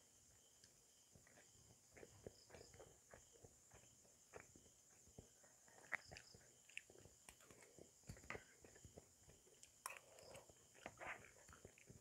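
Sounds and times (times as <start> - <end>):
person chewing food: 5.1 - 12.0.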